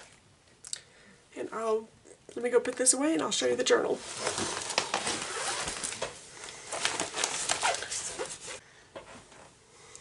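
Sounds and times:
plastic sleeves crinkling: 3.9s - 8.6s.

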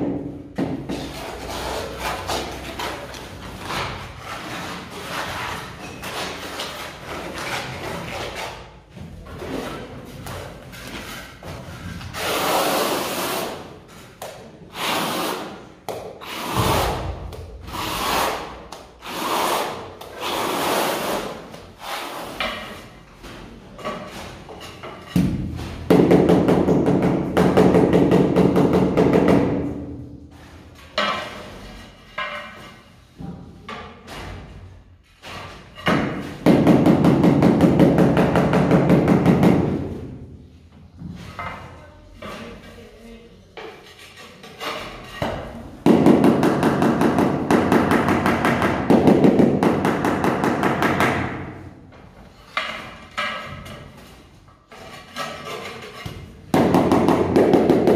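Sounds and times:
trowel scraping tile adhesive: 0.8s - 23.0s, 30.3s - 33.0s, 41.0s - 45.7s, 52.2s - 56.4s.

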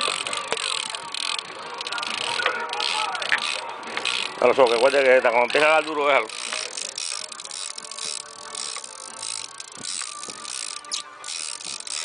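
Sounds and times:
fishing reel clicking: 0.0s - 12.0s.

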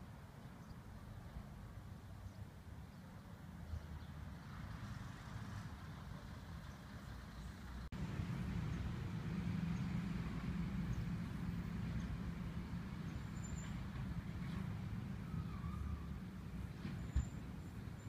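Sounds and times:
steady low rumble: 7.9s - 15.2s.

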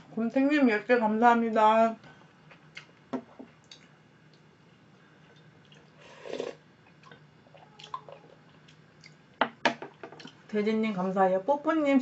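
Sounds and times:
person slurping broth: 6.0s - 6.6s.

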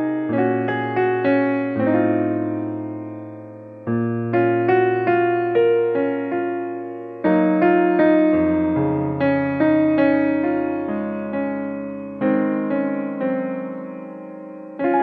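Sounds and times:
soft piano tune: 0.0s - 15.0s.

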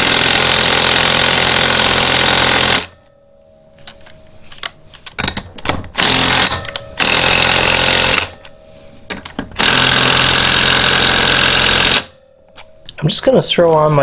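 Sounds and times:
impact wrench hammering lug nuts: 0.0s - 3.1s, 5.2s - 8.5s, 9.1s - 12.7s.

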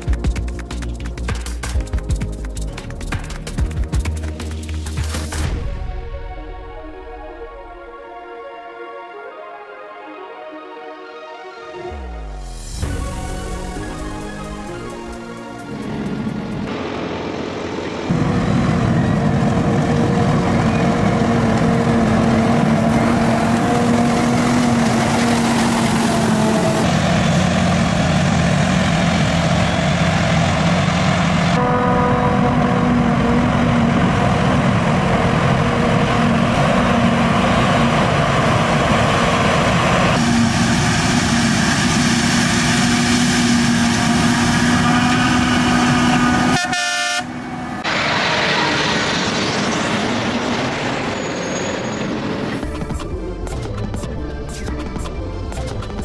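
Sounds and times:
diesel engines running under load: 13.4s - 56.0s.

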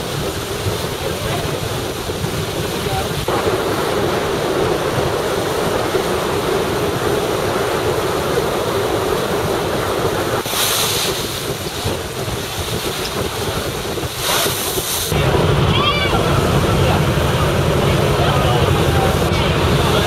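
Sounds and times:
water splashing along boat hull: 0.0s - 20.0s
wind buffeting microphone: 0.0s - 20.0s
hiss of spray: 10.4s - 11.5s.

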